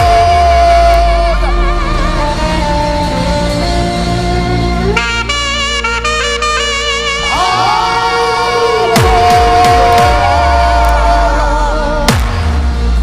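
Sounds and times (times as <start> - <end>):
trumpet-like wind instrument: 0.0 - 12.1
steady bass: 0.0 - 13.0.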